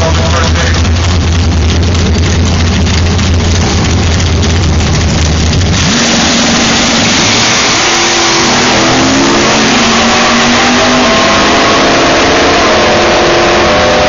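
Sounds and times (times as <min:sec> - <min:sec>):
racing car engine accelerating: 0:00.0 - 0:14.0
loud rushing noise: 0:05.6 - 0:14.0.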